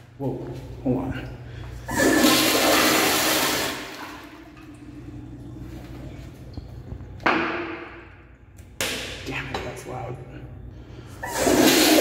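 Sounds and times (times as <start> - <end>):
toilet flushing: 1.8 - 5.1, 11.2 - 12.0.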